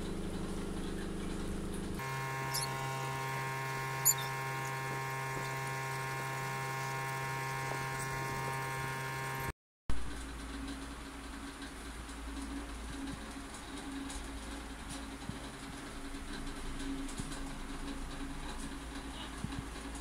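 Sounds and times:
noisy background: 0:10.0 - 0:20.0.

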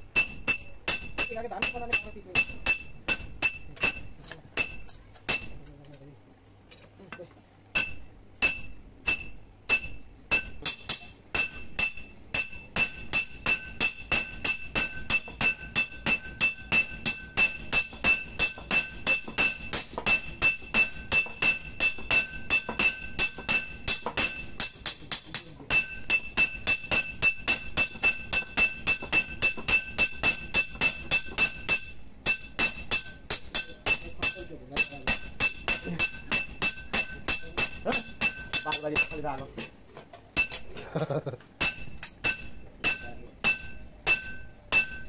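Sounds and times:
hammer blows ringing on anvil: 0:00.0 - 0:05.6, 0:07.7 - 0:39.4, 0:40.4 - 0:40.6, 0:41.6 - 0:45.0.

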